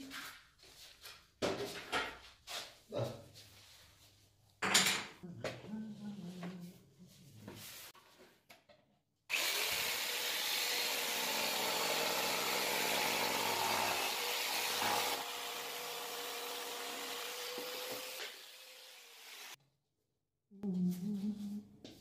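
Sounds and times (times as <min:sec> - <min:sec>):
electric saw cutting floorboard: 0:09.3 - 0:19.6.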